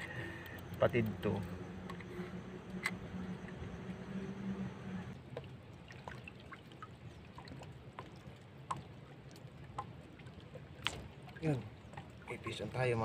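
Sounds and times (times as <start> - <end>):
light drips and ticks: 0.0 - 3.6, 5.1 - 13.0
water lapping against boat hull: 5.1 - 13.0.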